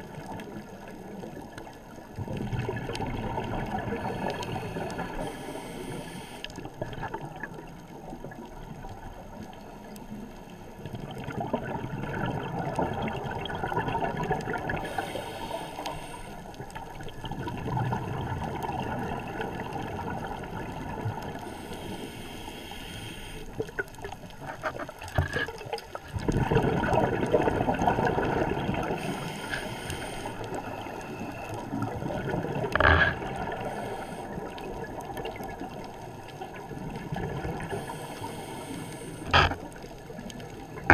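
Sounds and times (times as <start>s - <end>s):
underwater bubbles gurgling: 0.0s - 40.9s
regulator hiss: 4.1s - 6.5s, 14.8s - 16.5s, 21.4s - 23.6s, 28.9s - 31.4s, 33.6s - 34.4s, 37.7s - 39.6s.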